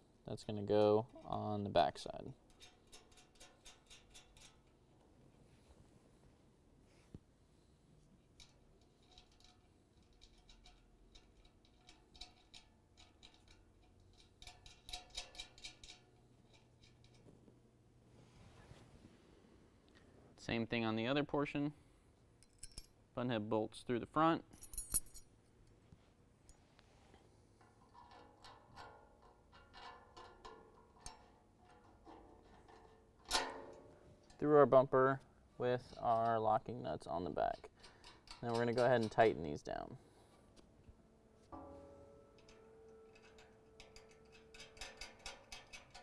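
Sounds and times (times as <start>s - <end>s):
metal parts clinking on steel: 22.4s - 22.9s, 24.5s - 25.3s, 42.4s - 46.0s
loud metallic clank: 41.6s - 42.4s.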